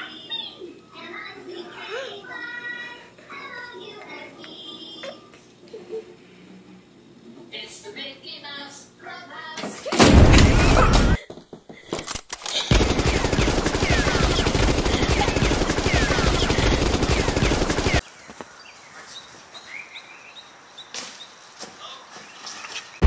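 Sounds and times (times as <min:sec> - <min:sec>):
explosion boom: 0:10.0 - 0:11.2
rapid machine-gun fire: 0:10.0 - 0:11.2, 0:12.7 - 0:18.0.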